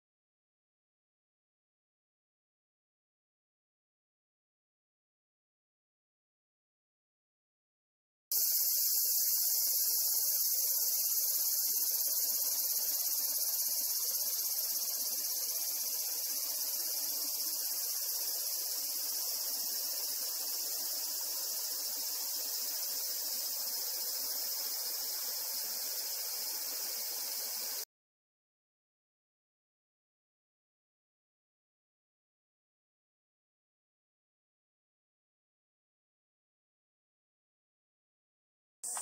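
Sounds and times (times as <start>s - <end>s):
insects droning: 8.3s - 27.9s.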